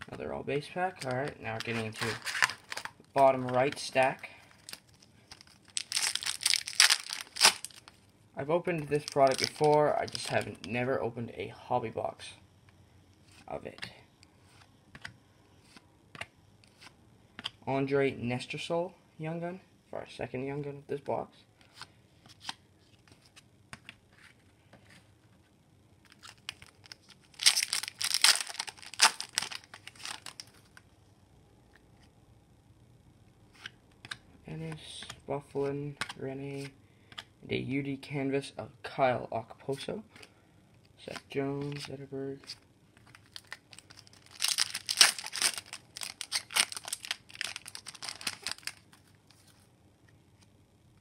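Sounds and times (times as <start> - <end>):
foil wrapper tearing and crinkling: 1.6 - 3.0, 4.6 - 8.0, 9.0 - 10.4, 26.1 - 30.5, 43.1 - 48.9.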